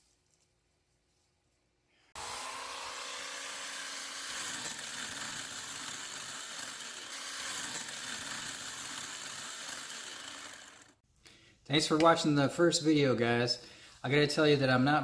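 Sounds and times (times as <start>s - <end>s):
small power tool motor whining: 2.2s - 11.0s.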